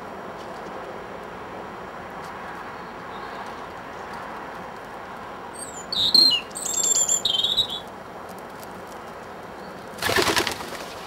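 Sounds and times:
small bird chirping: 0:05.6 - 0:07.9
pigeon wings clattering: 0:10.0 - 0:11.0.

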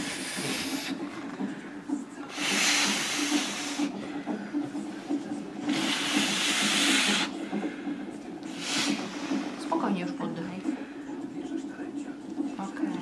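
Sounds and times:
hissing breaths through mouthpiece: 0:00.0 - 0:01.6, 0:02.3 - 0:04.2, 0:05.7 - 0:09.6.

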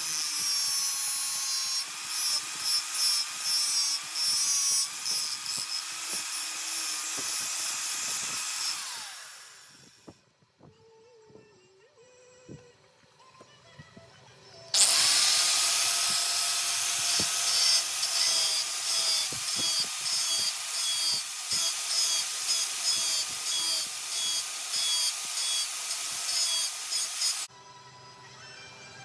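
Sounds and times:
angle grinder grinding steel: 0:00.0 - 0:10.2, 0:14.8 - 0:27.5.

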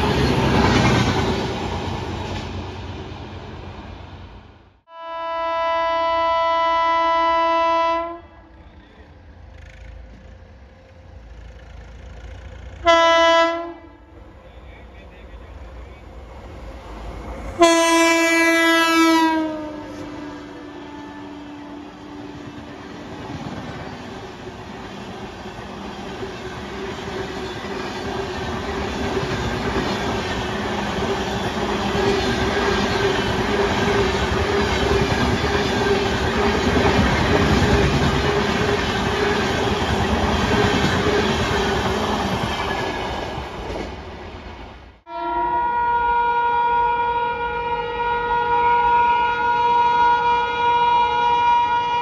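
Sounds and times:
train wheels clattering on rails: 0:00.0 - 0:02.7, 0:22.3 - 0:44.2
multi-tone train horn: 0:04.9 - 0:09.2, 0:12.6 - 0:15.6, 0:17.5 - 0:23.0, 0:45.1 - 0:52.0.

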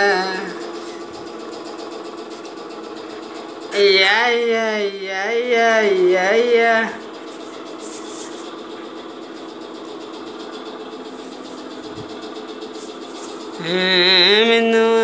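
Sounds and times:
steady machine hum: 0:00.0 - 0:15.0.

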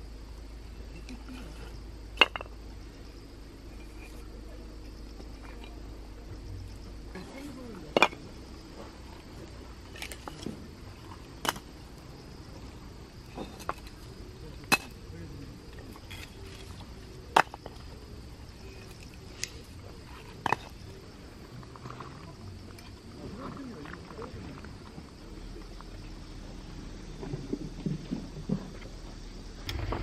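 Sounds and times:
firewood pieces clacking: 0:01.0 - 0:02.6, 0:06.6 - 0:12.1, 0:13.2 - 0:21.0.

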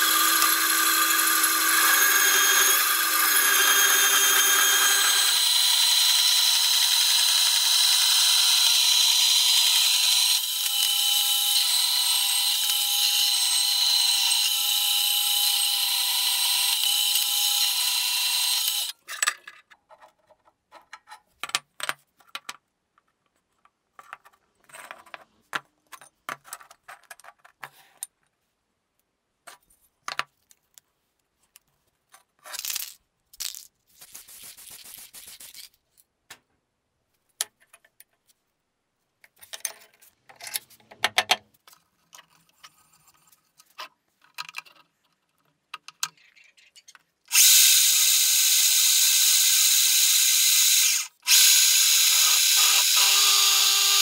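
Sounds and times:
drill press running: 0:00.0 - 0:18.9, 0:47.3 - 0:54.0
metal pieces clinking: 0:32.6 - 0:33.7.

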